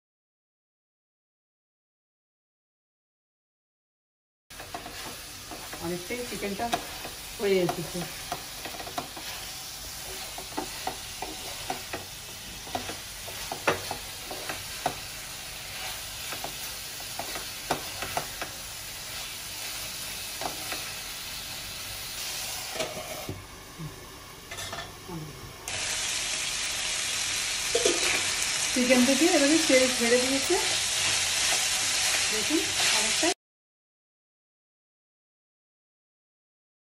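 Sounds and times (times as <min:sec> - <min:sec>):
food sizzling in frying pan: 0:04.5 - 0:33.4
wooden spatula scraping pan: 0:04.6 - 0:18.5
spatula knocking on pan: 0:10.1 - 0:15.1, 0:16.3 - 0:18.5.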